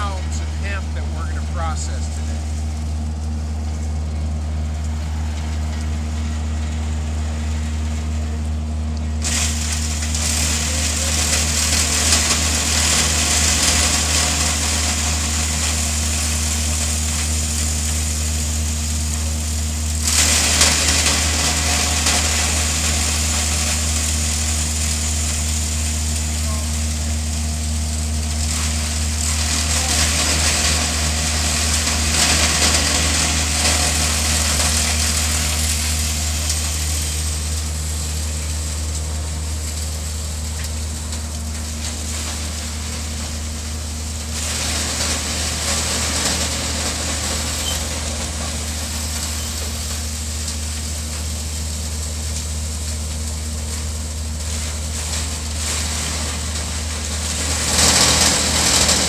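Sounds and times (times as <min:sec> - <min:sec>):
chopping machine humming: 0:00.0 - 0:59.0
stalks crunching in machine: 0:54.2 - 0:59.0.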